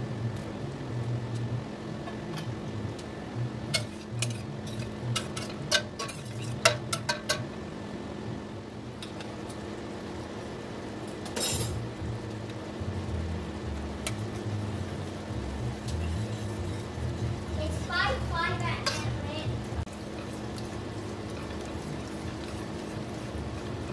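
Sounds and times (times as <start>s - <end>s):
ladle scraping pot: 3.7s - 7.4s, 15.8s - 17.8s.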